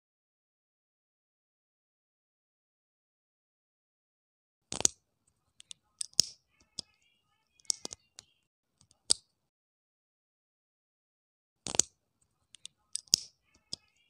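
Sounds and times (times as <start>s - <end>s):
plastic bricks clicking together: 4.7s - 5.0s, 5.6s - 7.0s, 7.6s - 9.3s, 11.6s - 14.0s.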